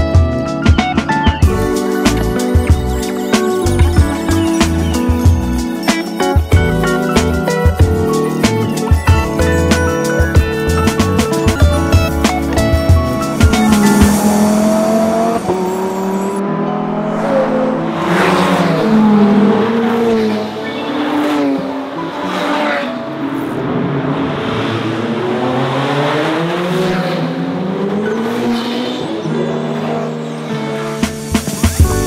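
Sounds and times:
cars passing by fast: 0:01.6 - 0:31.6
supercar engines revving: 0:09.4 - 0:30.4.

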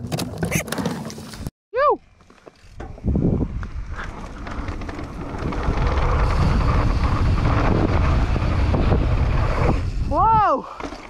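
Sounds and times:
bike tyres rolling on dirt: 0:00.9 - 0:11.0
wind on microphone: 0:02.8 - 0:04.2, 0:05.0 - 0:10.6.

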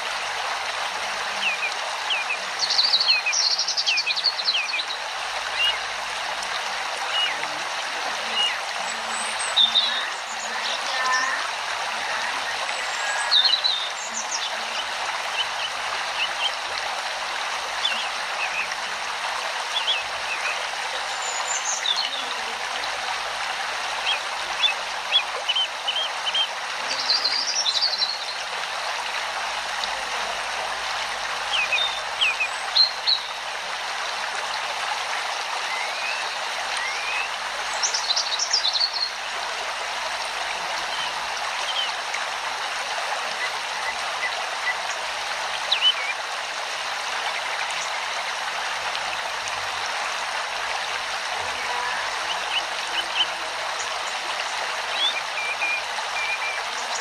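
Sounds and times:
rushing stream: 0:00.0 - 0:57.0.

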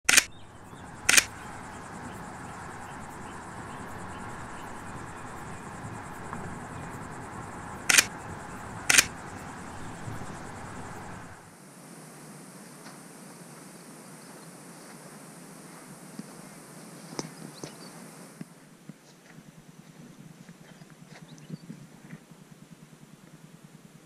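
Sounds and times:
sharp loud clicks: 0:00.0 - 0:11.5
vehicle road noise on dirt track: 0:00.0 - 0:11.5.

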